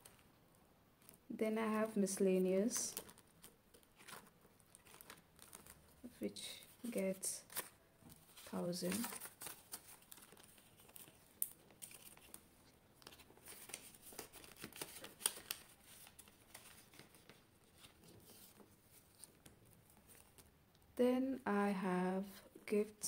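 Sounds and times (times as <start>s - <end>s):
paper banknotes rustling: 2.6s - 20.5s
plastic pocket crinkling: 2.7s - 6.0s, 7.4s - 20.5s.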